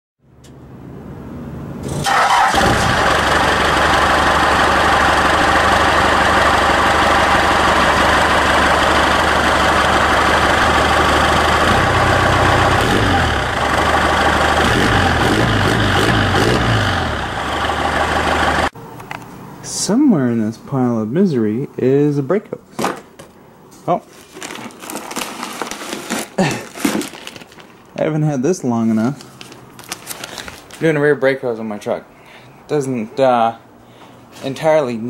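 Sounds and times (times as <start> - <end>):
truck engine starting and running: 1.7 - 18.8.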